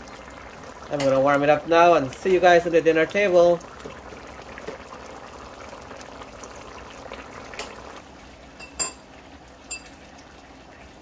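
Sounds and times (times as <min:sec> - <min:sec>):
curry bubbling in pot: 0:00.0 - 0:11.0.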